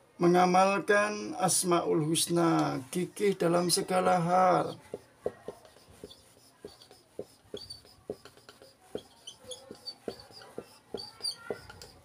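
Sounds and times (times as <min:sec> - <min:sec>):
marker writing on whiteboard: 0:02.4 - 0:12.0.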